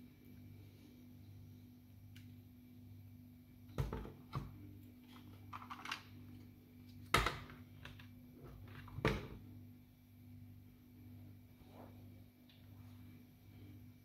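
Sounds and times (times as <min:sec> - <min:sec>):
steady low hum: 0:00.0 - 0:14.0
plastic parts knocking and clicking: 0:05.1 - 0:06.1.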